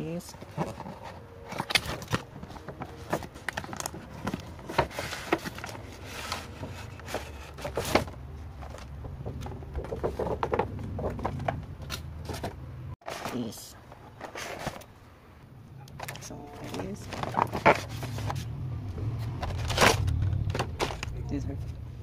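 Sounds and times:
packaging clicks and crinkles: 0.4 - 7.9, 15.9 - 18.4, 19.4 - 21.2.

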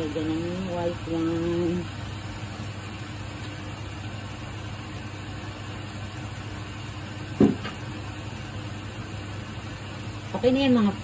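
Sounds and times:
food simmering in a pan: 0.0 - 11.0
gas stove burner hissing: 0.0 - 11.0
short thump: 7.4 - 7.8.

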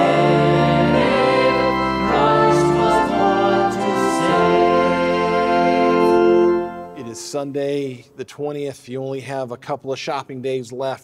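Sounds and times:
choir singing a hymn: 0.0 - 7.2
instrumental accompaniment: 0.0 - 7.8.

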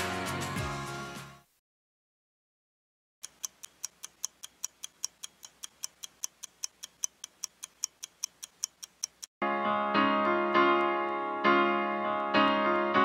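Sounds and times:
background music: 0.0 - 1.5, 9.4 - 13.0
fast clock ticking: 3.2 - 9.3.

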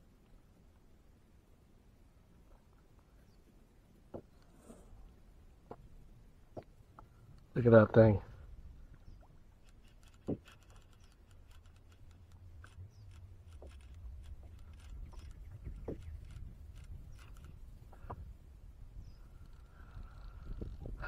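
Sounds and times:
low rumble of wind or water: 0.0 - 21.0
faint clicks and knocks: 9.6 - 18.2.

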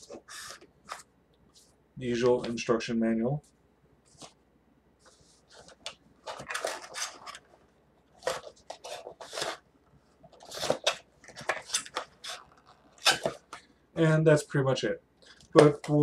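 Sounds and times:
paper and cardboard rustling: 5.0 - 13.6.

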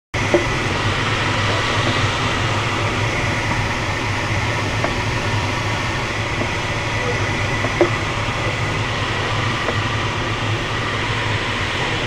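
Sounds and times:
airflow rushing over canopy: 0.2 - 12.0
low steady hum: 0.2 - 12.0.

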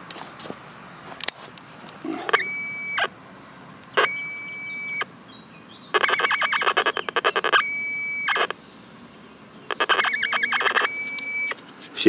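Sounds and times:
metal detector tone: 2.1 - 3.1, 4.0 - 5.1, 6.0 - 8.5, 9.7 - 11.6
fast-warbling electronic tone: 6.0 - 8.5, 9.7 - 11.6.

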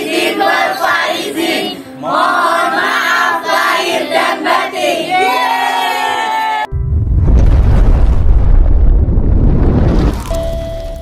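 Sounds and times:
crowd calling out in unison: 0.2 - 6.7.

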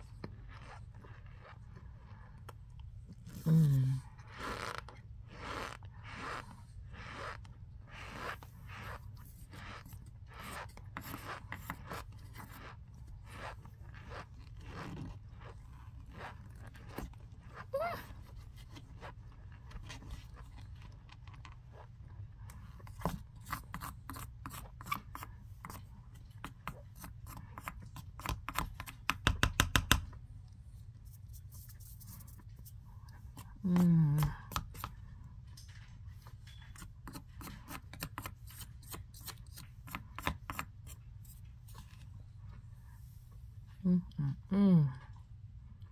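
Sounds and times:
spoon crunching packed cornstarch: 0.0 - 29.6, 36.1 - 42.6.

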